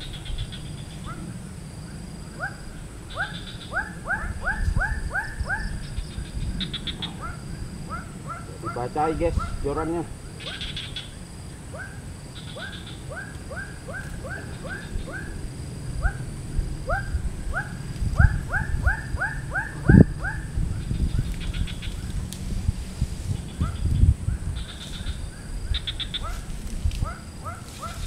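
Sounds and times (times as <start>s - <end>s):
animal calling with upward-sliding notes: 16.9s - 22.1s.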